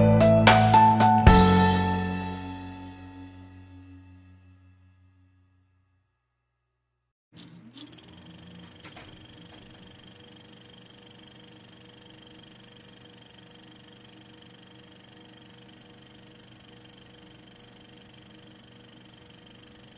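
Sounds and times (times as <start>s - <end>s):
thin steady whines: 7.4s - 19.9s.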